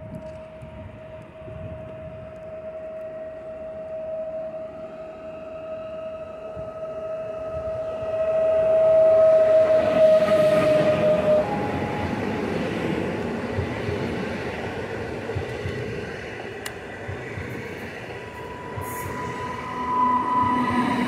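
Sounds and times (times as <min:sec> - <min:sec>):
train motor whine: 0:00.0 - 0:21.0
train wheels rumbling: 0:00.0 - 0:21.0.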